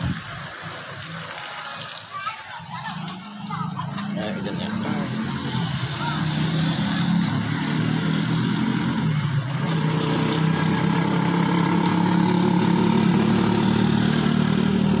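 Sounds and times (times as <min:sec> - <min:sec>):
small engine running steadily: 0:03.3 - 0:15.0.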